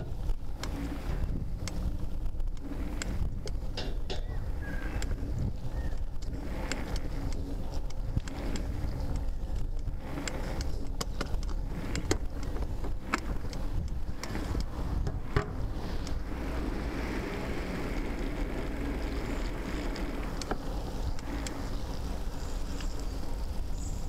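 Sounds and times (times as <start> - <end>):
bicycle tyre and wind rumble: 0.0 - 24.0
bike clicks and knocks: 0.0 - 24.0.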